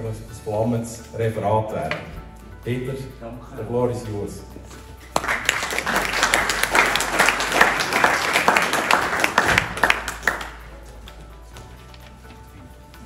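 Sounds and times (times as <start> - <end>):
audience applauding: 5.1 - 10.8.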